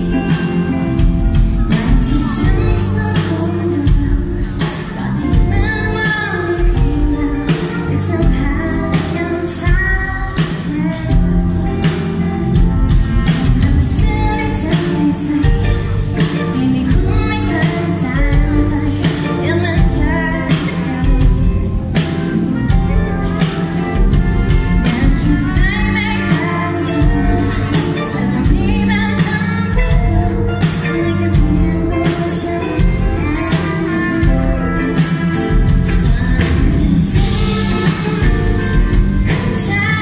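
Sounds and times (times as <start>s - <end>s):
electric bass: 0.0s - 40.0s
woman singing: 0.0s - 40.0s.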